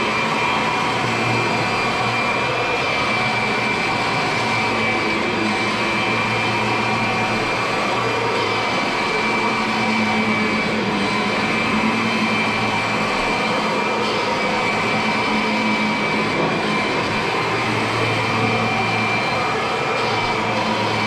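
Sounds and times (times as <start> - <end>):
vacuum cleaner running: 0.0 - 21.0.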